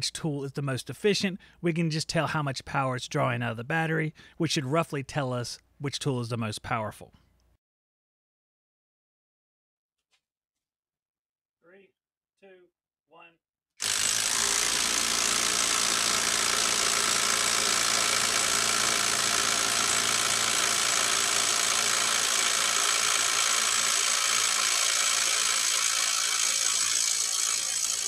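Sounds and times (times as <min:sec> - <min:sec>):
impact driver hammering: 0:13.8 - 0:28.0.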